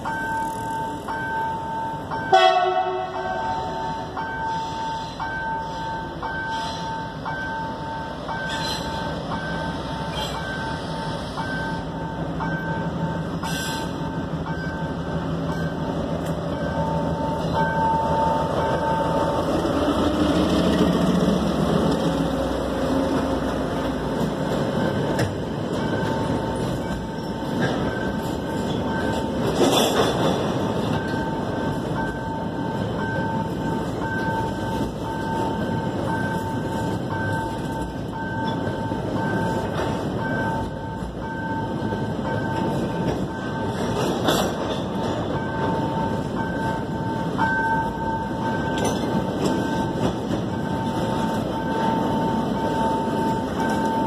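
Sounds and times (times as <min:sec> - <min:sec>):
level crossing warning bell: 0:00.0 - 0:21.0, 0:22.0 - 0:54.0
diesel locomotive engine: 0:00.0 - 0:54.0
train horn blast: 0:02.3 - 0:04.1
wagons rolling on rails: 0:14.5 - 0:54.0.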